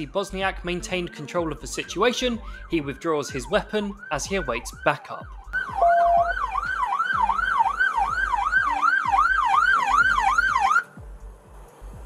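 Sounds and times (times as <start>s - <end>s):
police siren yelping: 2.0s - 10.9s.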